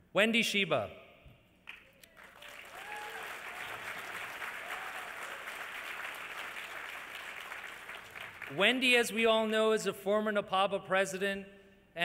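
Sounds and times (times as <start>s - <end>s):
audience applauding: 1.7s - 8.6s.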